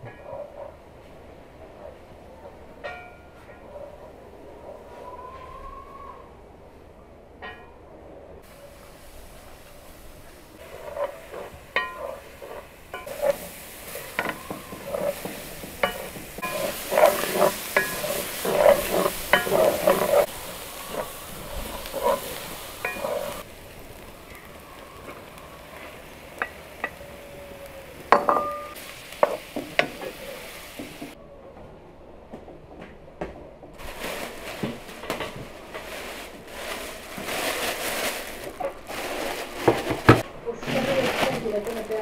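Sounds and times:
food sizzling: 8.4s - 31.2s, 33.8s - 42.0s
wooden spoon scraping a pan: 8.5s - 31.2s, 33.8s - 42.0s.

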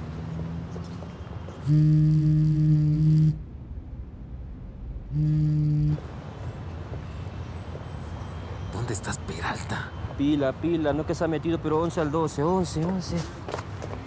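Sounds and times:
smartphone vibrating on desk: 1.6s - 3.4s, 5.2s - 6.0s.

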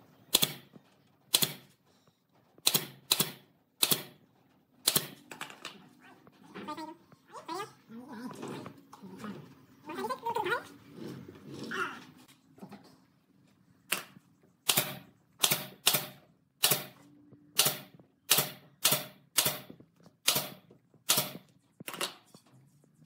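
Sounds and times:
nail gun firing into boards: 0.3s - 1.8s, 2.6s - 4.2s, 4.8s - 5.2s, 14.7s - 17.0s, 17.6s - 22.2s.

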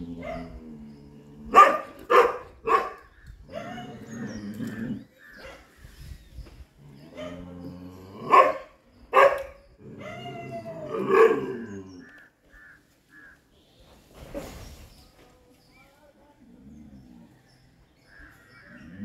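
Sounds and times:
dog barking: 0.2s - 0.6s, 1.5s - 4.0s, 7.2s - 7.4s, 8.3s - 10.2s, 10.9s - 11.6s.

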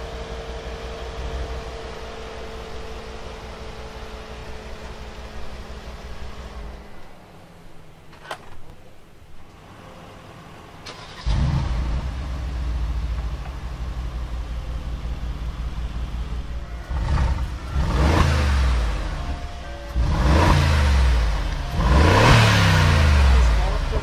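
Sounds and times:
car engine starting and idling: 0.0s - 24.0s
engine revving: 10.8s - 14.2s, 14.9s - 24.0s.

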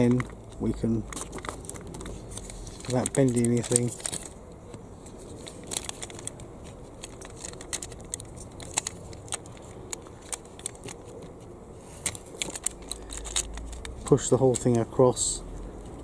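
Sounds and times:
plastic and metal clicks of toy gearbox: 12.0s - 14.9s.

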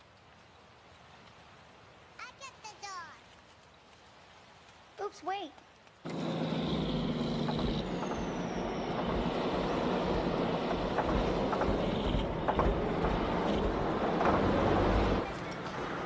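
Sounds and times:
truck engine rumble: 6.0s - 16.0s
hum: 6.1s - 15.9s
thin falling squeal: 6.1s - 16.0s.

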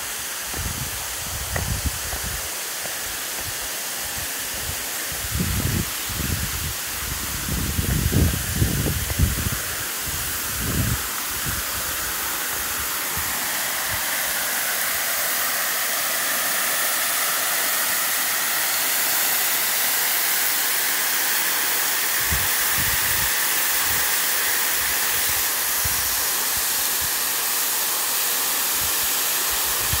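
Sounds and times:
waterfall rushing: 0.0s - 30.0s.

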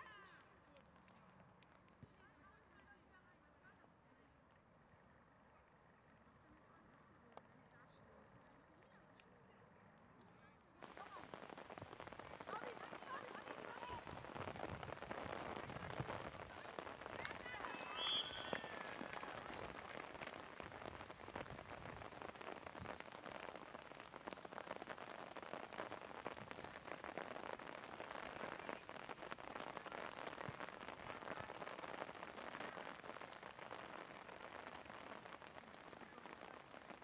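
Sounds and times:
rain pattering: 10.8s - 37.0s.

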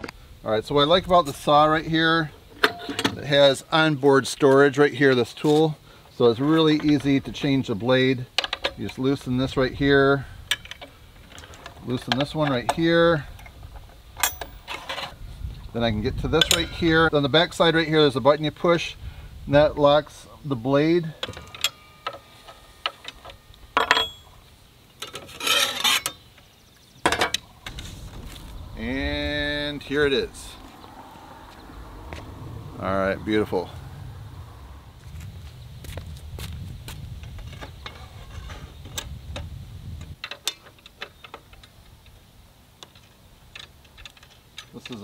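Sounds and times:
ringing metal clink: 14.2s - 14.8s, 21.2s - 24.4s
metal scraping rasp: 25.2s - 26.2s
low rumble: 27.5s - 38.5s.

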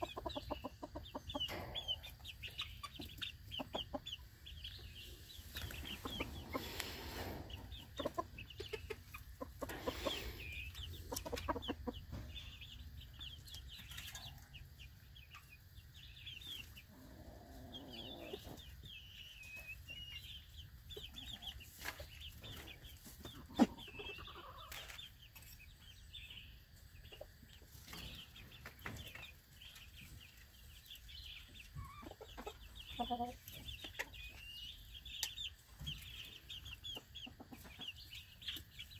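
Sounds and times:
chickens clucking: 0.0s - 38.9s.

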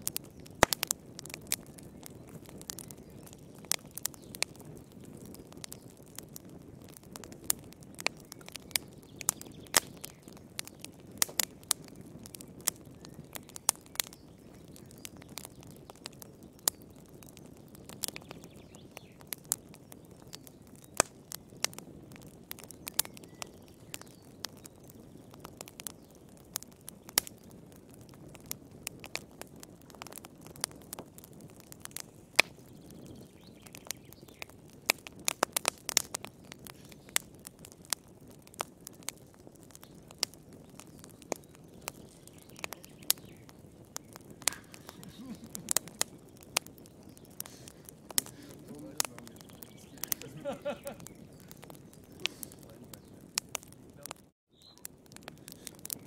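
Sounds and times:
log fire crackling: 0.0s - 56.0s.

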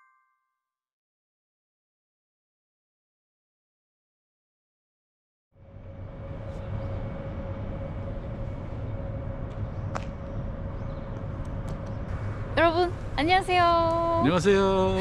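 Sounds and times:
distant traffic rumble: 5.6s - 15.0s
faint steady hum: 5.6s - 15.0s.

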